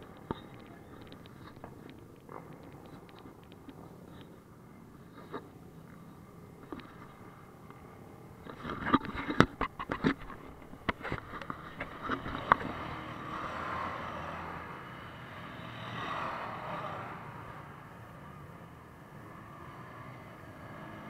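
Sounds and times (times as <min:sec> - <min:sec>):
off-road engines passing: 0:00.0 - 0:08.7, 0:10.5 - 0:21.0.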